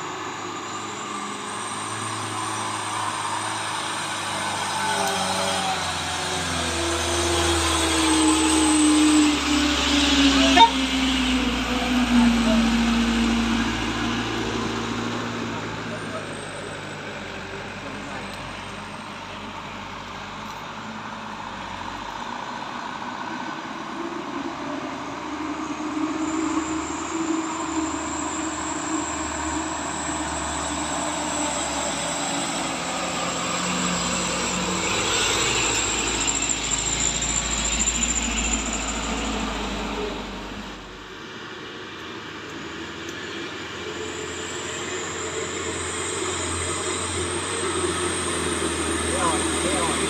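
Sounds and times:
truck engine labouring uphill: 0.0s - 50.0s
thin high whine: 0.1s - 16.7s.

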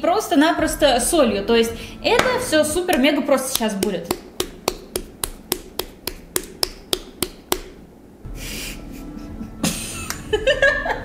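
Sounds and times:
woman laughing: 8.4s - 11.0s.

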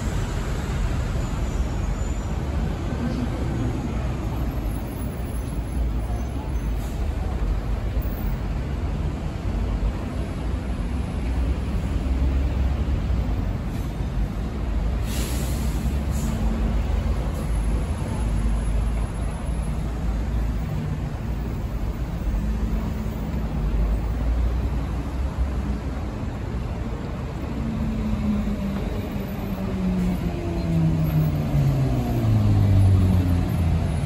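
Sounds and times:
buses and cars passing: 0.0s - 34.0s
short hiss: 15.0s - 16.3s.

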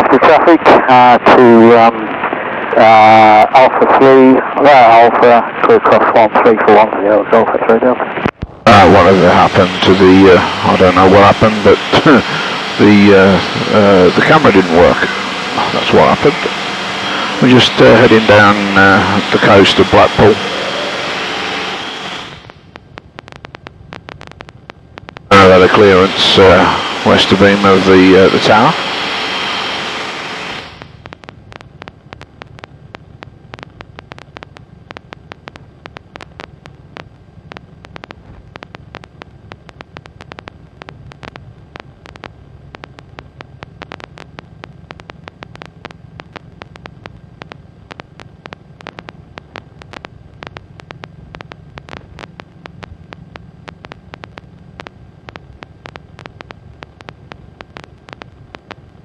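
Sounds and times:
aircraft engine droning: 8.7s - 22.4s, 25.3s - 31.0s
irregular crackle of clicks: 22.4s - 25.3s, 30.8s - 59.0s.

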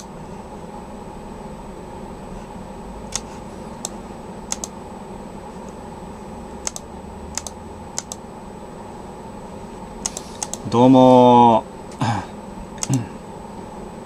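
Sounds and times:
room hum: 0.0s - 14.0s
keyboard key clicks: 3.1s - 4.7s, 6.6s - 8.2s.

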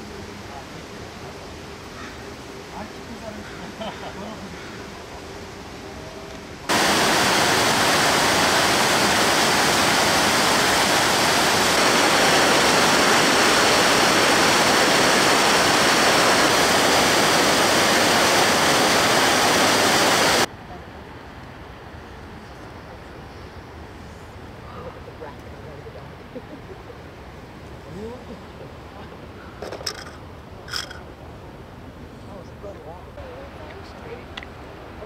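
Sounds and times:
water rushing over boulders: 6.7s - 20.5s.

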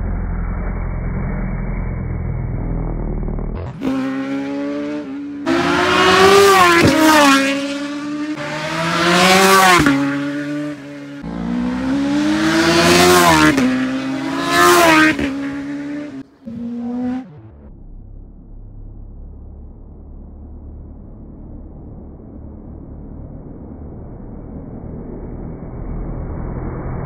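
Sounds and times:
racing motorcycles passing: 3.7s - 17.4s.

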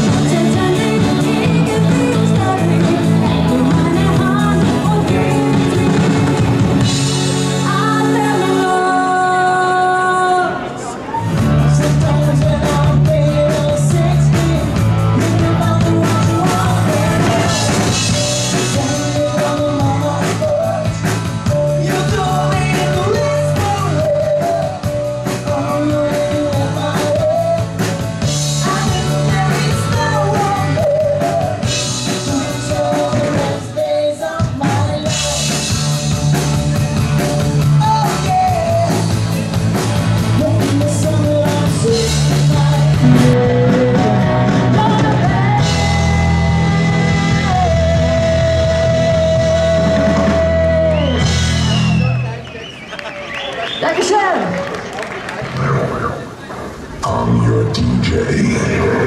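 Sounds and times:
person singing: 0.0s - 6.4s, 7.6s - 10.7s, 11.6s - 35.8s, 37.6s - 39.2s, 40.3s - 51.0s
rock band playing: 0.0s - 9.4s, 11.1s - 53.4s.

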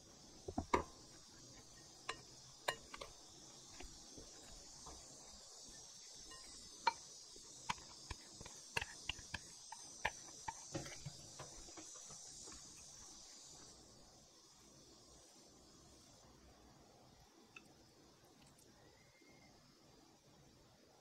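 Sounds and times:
faint steady hiss: 0.0s - 21.0s.

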